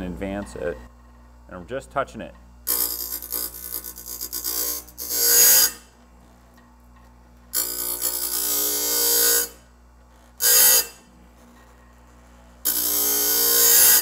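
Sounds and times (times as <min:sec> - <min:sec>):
sharpener motor humming: 0:02.6 - 0:06.6, 0:07.3 - 0:14.0
grinding wheel on saw teeth: 0:02.7 - 0:06.4, 0:07.5 - 0:14.0.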